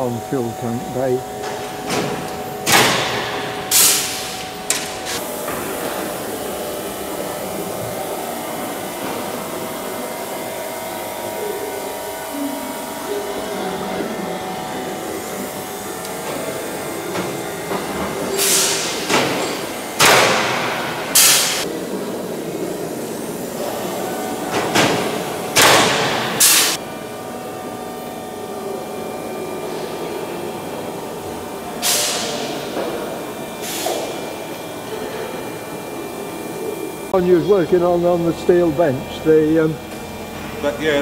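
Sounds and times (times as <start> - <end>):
workshop hum: 0.0 - 41.0.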